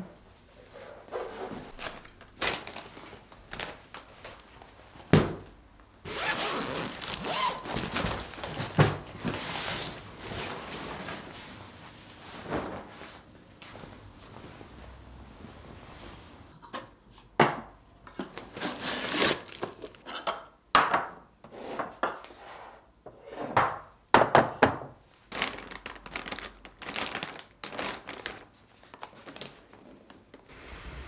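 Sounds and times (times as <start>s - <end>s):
plastic crinkling: 1.7s - 4.7s, 6.1s - 9.4s, 18.4s - 20.0s, 25.2s - 30.4s
zip pulled open: 6.1s - 7.6s.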